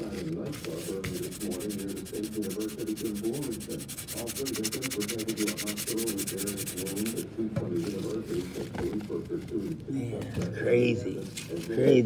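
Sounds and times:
fingertips rubbing paper: 0.0s - 7.3s.

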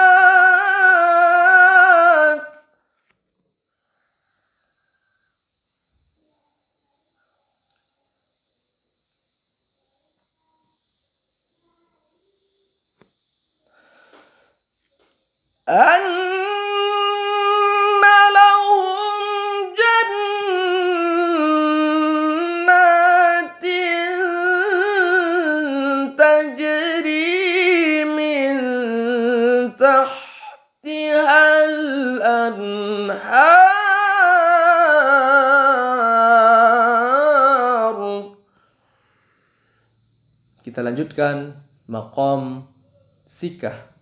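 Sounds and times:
man chanting recitation: 0.0s - 2.6s, 15.7s - 38.4s, 40.6s - 44.0s.

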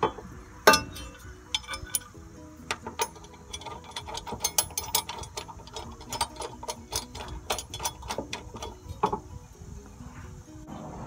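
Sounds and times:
socket ratchet clicking: 0.7s - 9.2s.

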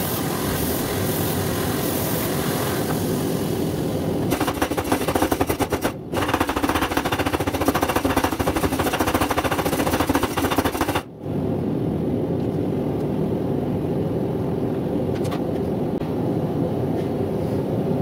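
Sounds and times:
power hammer blows: 4.2s - 11.1s.

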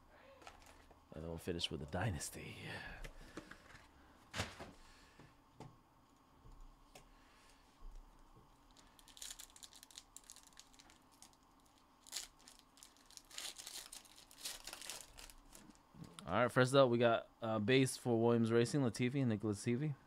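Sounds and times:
foil pack crinkling and tearing: 0.4s - 0.9s, 8.6s - 15.8s.

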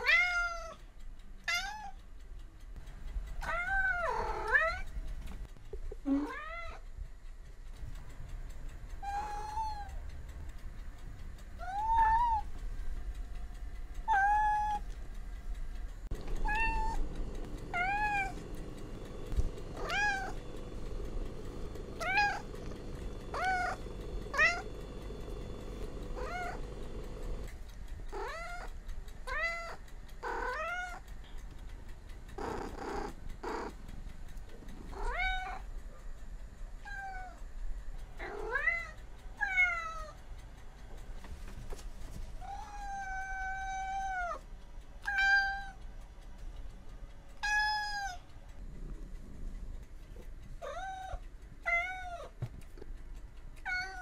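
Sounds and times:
cat meowing: 0.0s - 0.8s, 1.4s - 2.0s, 3.4s - 4.9s, 6.1s - 6.8s, 9.0s - 9.9s, 11.6s - 12.5s, 14.1s - 14.9s, 16.4s - 17.0s, 17.7s - 18.4s, 19.8s - 20.4s, 22.0s - 22.5s, 23.3s - 24.7s, 26.2s - 26.6s, 29.3s - 31.0s, 34.9s - 35.6s, 42.4s - 44.4s, 45.0s - 45.8s, 47.4s - 48.2s, 50.6s - 52.4s, 53.6s - 54.0s.

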